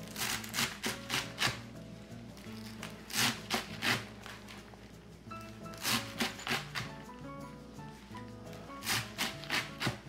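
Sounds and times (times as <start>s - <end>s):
background music: 0.0s - 10.0s
cleaver chopping on cutting board: 8.8s - 10.0s.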